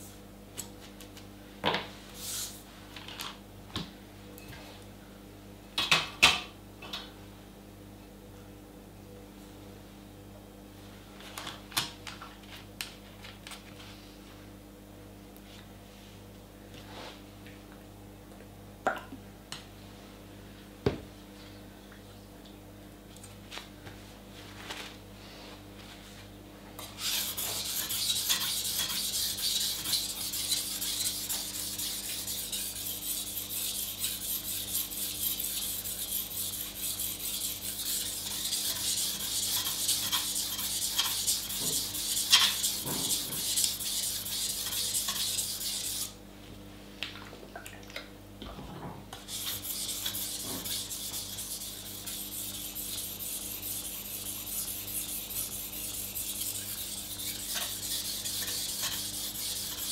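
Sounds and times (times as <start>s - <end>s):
knife scraping on whetstone: 26.9s - 46.2s, 49.3s - 59.9s.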